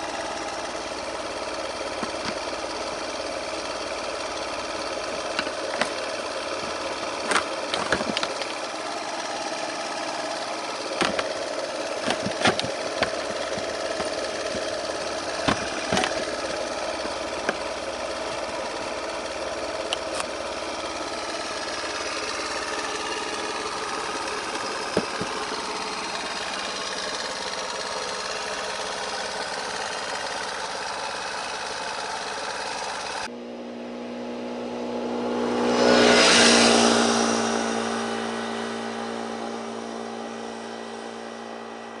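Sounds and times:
scooter engine running: 0:00.0 - 0:42.0
scooter riding past: 0:35.0 - 0:40.0.

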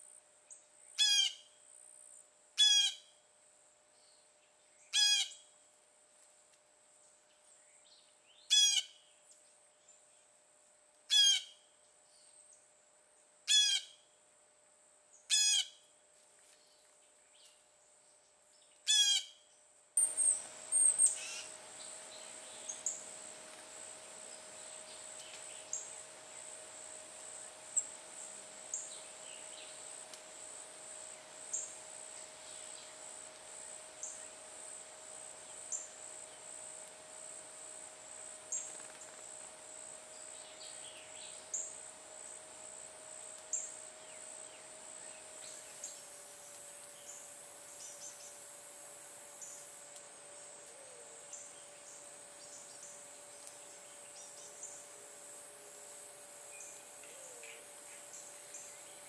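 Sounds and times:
low steady hum: 0:00.0 - 0:59.0
insects chorus: 0:11.1 - 0:59.0.

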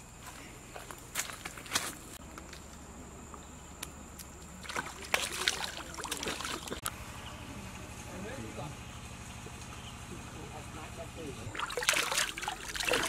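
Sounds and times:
water splashing: 0:04.6 - 0:06.8, 0:11.5 - 0:13.0.

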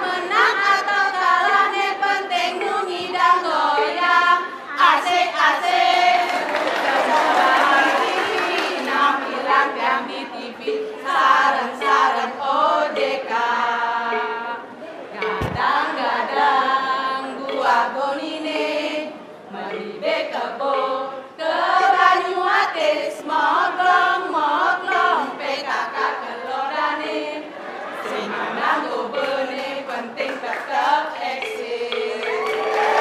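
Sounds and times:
women singing and chanting: 0:00.0 - 0:33.0
sharp thump: 0:15.2 - 0:15.8.

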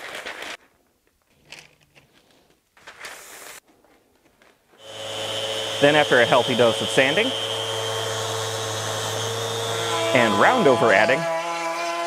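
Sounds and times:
paper and wood parts rustling: 0:00.0 - 0:04.8.

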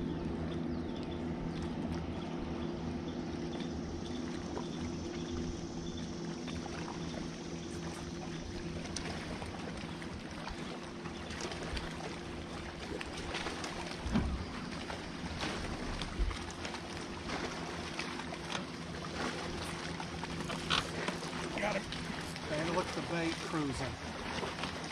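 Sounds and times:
steady low hum: 0:00.0 - 0:24.9
water lapping against boat hull: 0:00.0 - 0:24.9.

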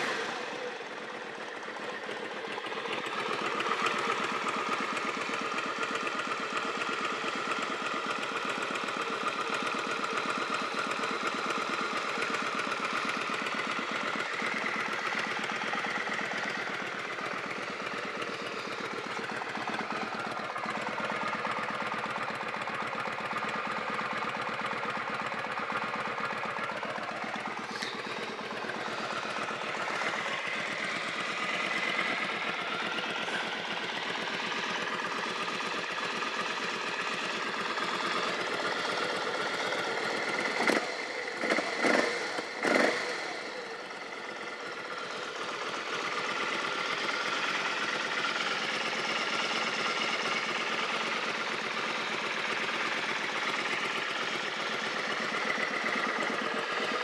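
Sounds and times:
motorcycle engine idling: 0:00.0 - 0:57.0
loud engine bursts: 0:27.7 - 0:28.1.

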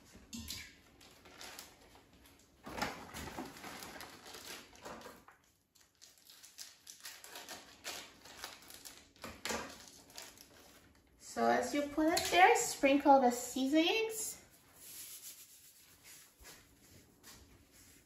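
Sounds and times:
plastic wrappers crinkling: 0:00.9 - 0:11.2.

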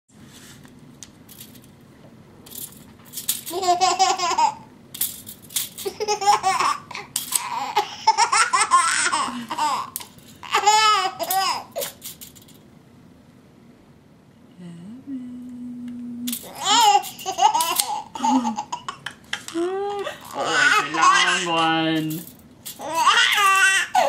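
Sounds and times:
tape measure clicking and rattling: 0:01.3 - 0:01.7, 0:02.4 - 0:04.2, 0:04.9 - 0:06.0, 0:07.2 - 0:07.6, 0:09.9 - 0:10.3, 0:11.2 - 0:12.6, 0:16.3 - 0:18.0, 0:22.0 - 0:23.8
baby laughing: 0:03.5 - 0:04.7, 0:05.8 - 0:12.0, 0:16.5 - 0:21.6, 0:22.8 - 0:24.0.

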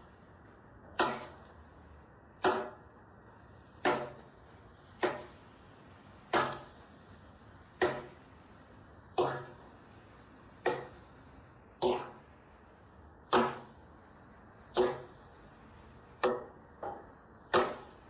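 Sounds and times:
axe blade striking wood: 0:00.9 - 0:01.4, 0:02.4 - 0:02.8, 0:03.8 - 0:04.3, 0:05.0 - 0:05.4, 0:06.3 - 0:06.7, 0:07.8 - 0:08.2, 0:09.2 - 0:09.6, 0:10.6 - 0:11.0, 0:13.3 - 0:13.7, 0:14.8 - 0:15.1, 0:16.2 - 0:17.9.

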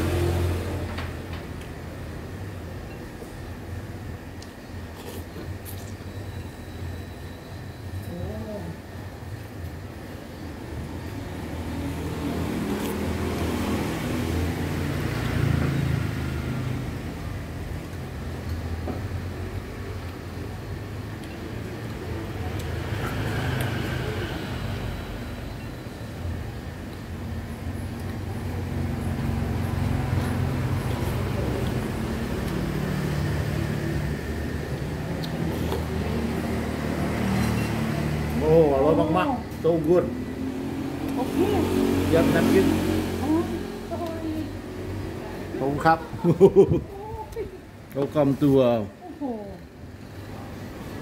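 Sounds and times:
street traffic rumble: 0:00.0 - 0:51.0
vehicle engine driving past: 0:22.7 - 0:25.6, 0:28.6 - 0:46.0.

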